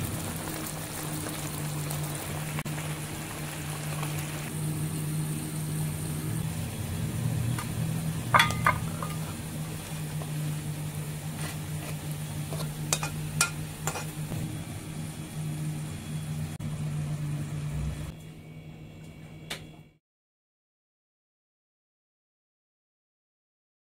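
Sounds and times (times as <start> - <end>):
low machine hum: 0.0 - 20.0
dishes clinking: 8.3 - 9.4, 12.5 - 14.1.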